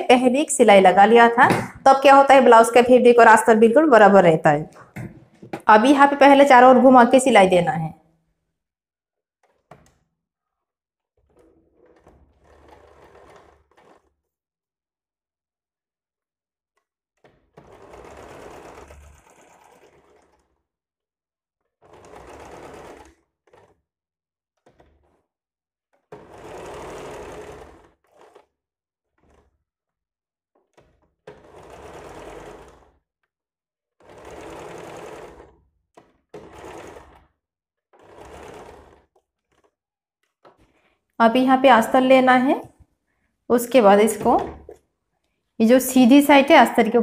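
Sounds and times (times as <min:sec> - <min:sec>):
sewing machine stitching: 0:09.4 - 0:10.0, 0:11.2 - 0:14.3, 0:17.2 - 0:20.7, 0:21.7 - 0:23.9, 0:24.6 - 0:25.3, 0:25.9 - 0:29.6, 0:30.6 - 0:33.1, 0:33.9 - 0:42.8, 0:43.5 - 0:47.0.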